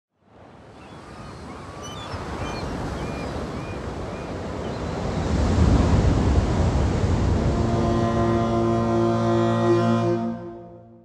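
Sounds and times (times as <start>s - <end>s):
wind: 0.1s - 10.8s
sea surf: 0.2s - 10.6s
faint high bird calls: 0.7s - 4.8s.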